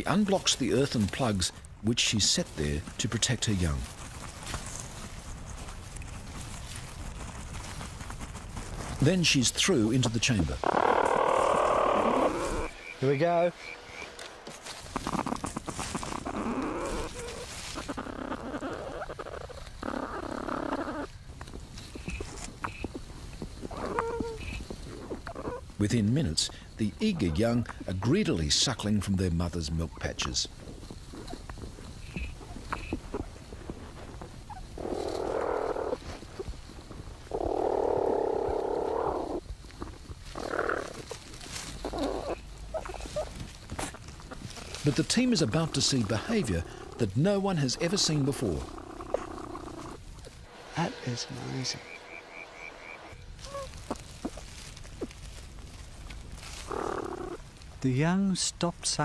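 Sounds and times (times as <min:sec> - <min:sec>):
animals scuffling and grunting: 0:00.0 - 0:57.8
platypuses hoarse bursts: 0:50.4 - 0:53.8.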